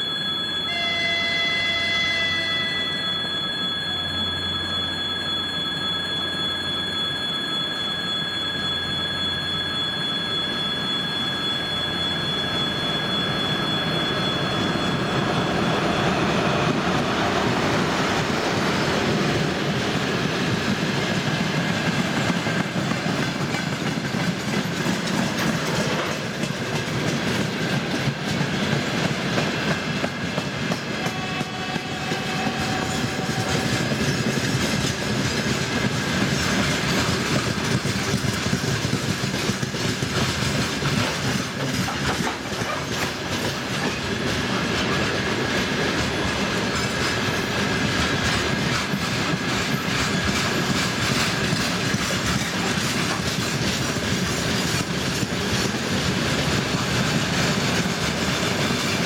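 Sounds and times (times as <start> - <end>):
wheel squeal: 0.0 - 18.2
electric locomotive whine: 0.0 - 59.0
train wheels clattering: 11.2 - 59.0.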